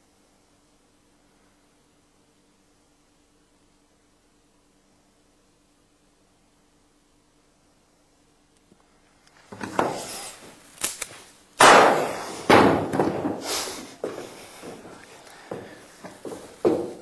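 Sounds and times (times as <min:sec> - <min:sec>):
revolver gunshot: 0:11.6 - 0:13.0
sharp knocks: 0:11.6 - 0:14.8.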